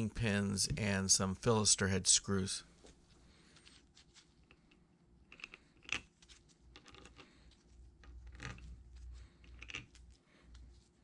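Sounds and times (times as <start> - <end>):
screws clicking and rattling: 9.4 - 10.0.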